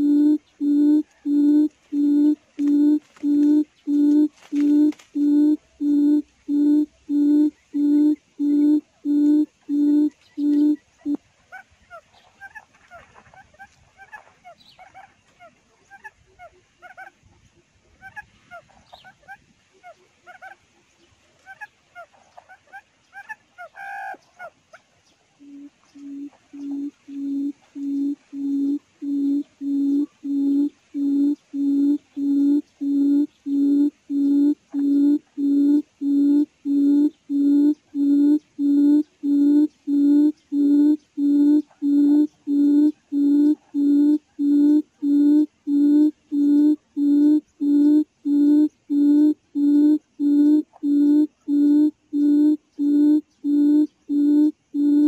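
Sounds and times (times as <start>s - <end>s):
faint bird chirps: 0.0s - 11.2s, 23.1s - 55.0s
quail call hooting notes: 0.0s - 11.2s, 25.4s - 55.0s.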